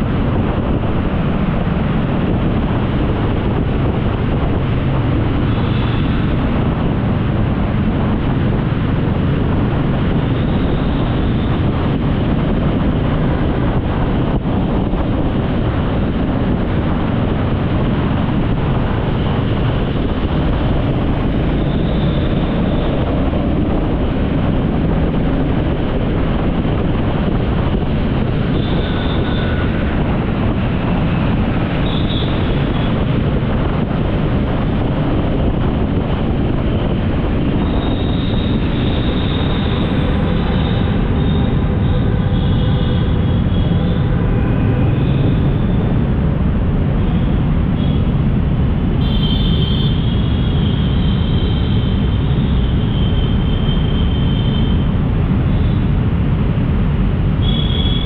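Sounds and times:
moving vehicle rushing noise: 0.0 - 58.0
wind on microphone: 0.0 - 58.0.

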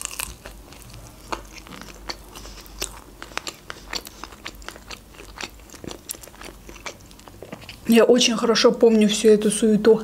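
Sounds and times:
wet chewing mouth clicks: 0.4 - 7.9.

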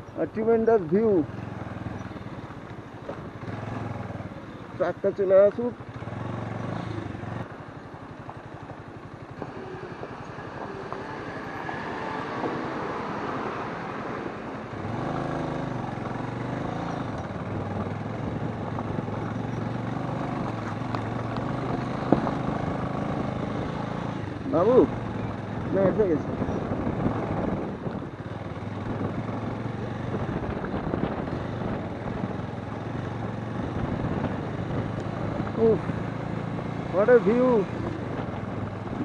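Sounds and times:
motorcycle engine on gravel: 16.0 - 23.5.

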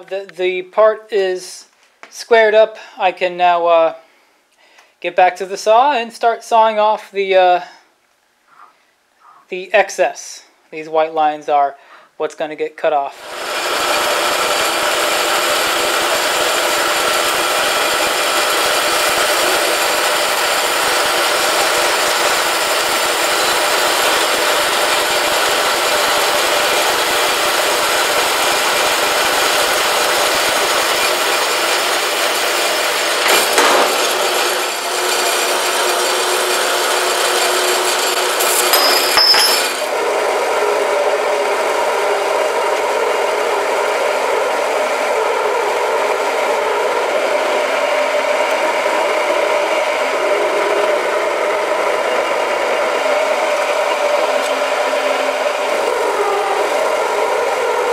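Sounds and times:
bandsaw cutting metal: 13.2 - 40.0
milling machine running: 13.2 - 57.9.

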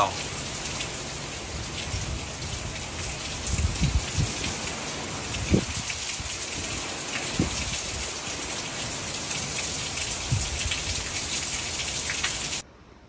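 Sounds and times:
wind and rain rushing: 0.0 - 13.0
gusts thumping on microphone: 3.4 - 4.6, 5.3 - 8.0, 10.3 - 10.7.

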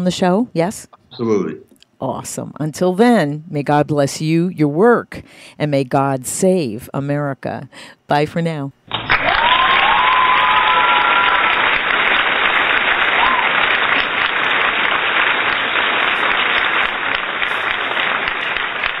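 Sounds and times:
crowd applause and cheering: 8.9 - 19.0
whistles: 13.1 - 14.2.

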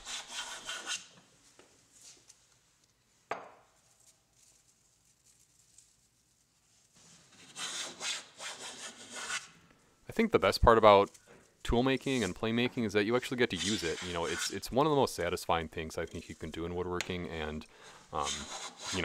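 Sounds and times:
wooden hand plane rasping: 0.0 - 1.0, 7.3 - 9.5, 13.6 - 14.6, 18.2 - 19.0.

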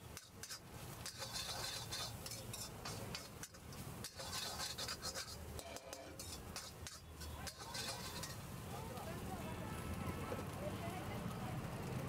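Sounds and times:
metal spoon scraping a wok: 0.0 - 8.5.

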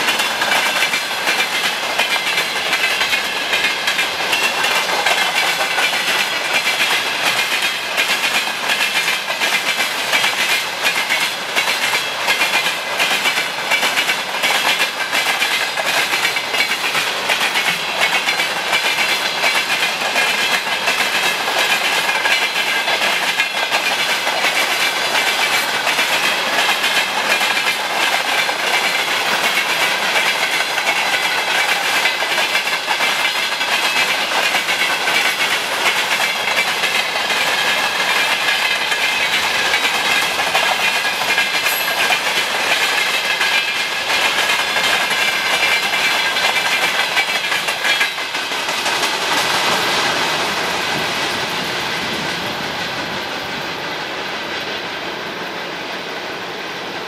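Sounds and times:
hissing rush of passing train: 0.0 - 57.0
train wheels clattering on rails: 0.0 - 57.0.

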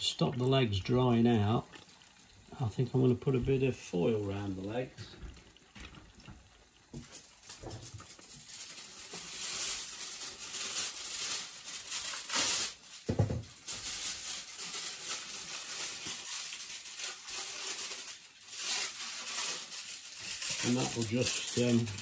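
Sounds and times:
kitchen foil crinkling: 6.9 - 22.0
thump: 13.1 - 13.5.

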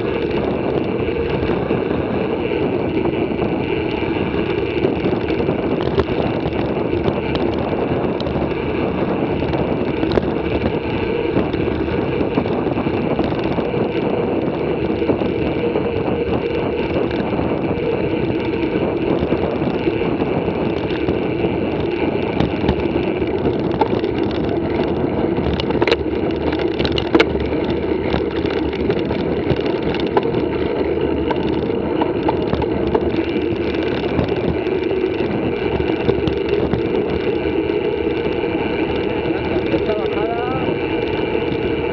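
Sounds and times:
bicycle tyre rumble on pavement: 0.0 - 41.9
wind noise: 0.0 - 41.9.

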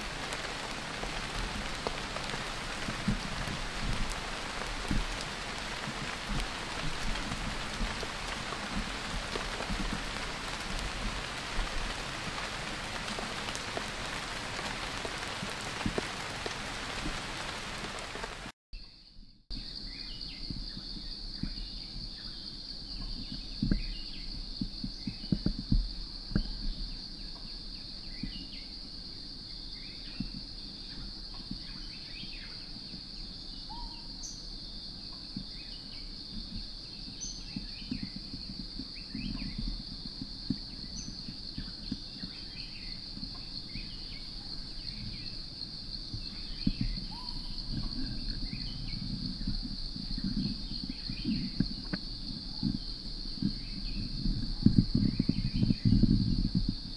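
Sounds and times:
steady rain: 0.0 - 18.6, 20.5 - 56.9
insect drone: 0.0 - 56.9
faint bird chirps: 46.2 - 49.1.

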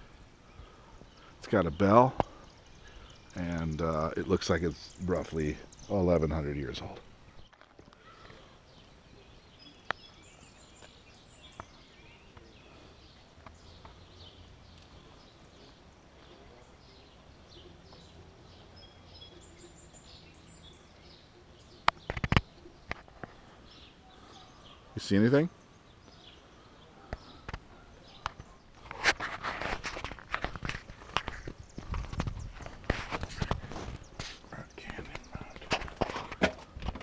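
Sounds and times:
birds chirping: 0.0 - 37.0
sharp clicks and knocks: 21.8 - 23.3.

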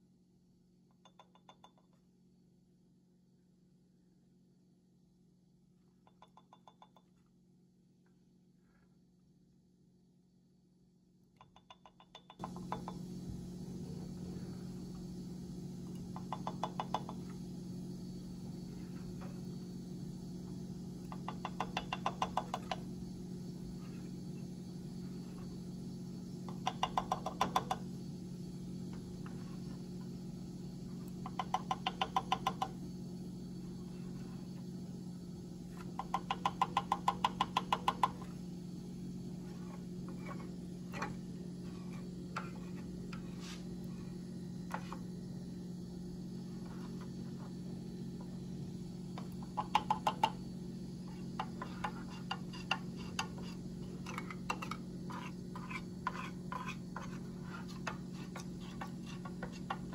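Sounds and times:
low hum: 12.4 - 16.3, 32.6 - 35.8.

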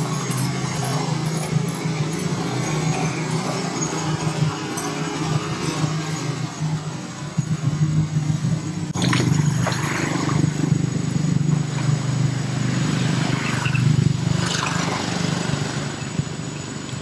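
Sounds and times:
low motor-like drone: 0.0 - 17.0
water splashing and sloshing: 8.9 - 10.9, 13.2 - 15.4.

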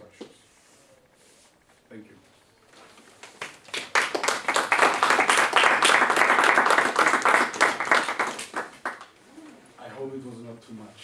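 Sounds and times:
audience applauding: 3.2 - 9.1.

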